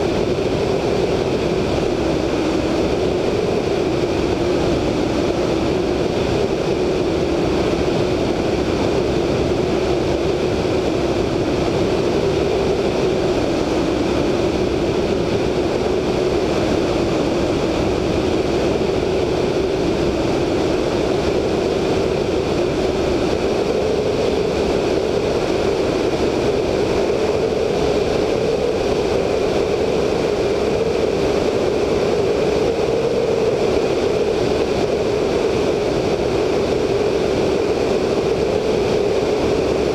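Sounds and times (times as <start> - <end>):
radial aircraft engine droning: 0.0 - 39.9
wind rushing past microphone: 0.0 - 39.9.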